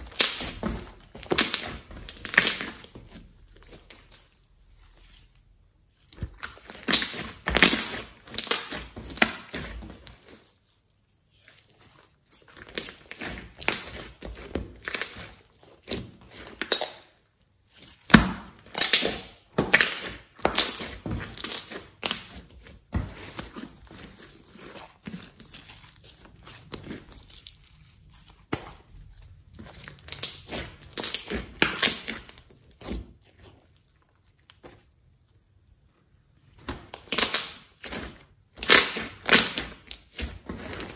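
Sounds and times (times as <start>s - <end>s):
slime clicking and popping: 0.0s - 3.0s, 6.2s - 10.1s, 16.3s - 17.1s, 18.1s - 22.5s, 29.9s - 32.4s, 36.9s - 37.9s.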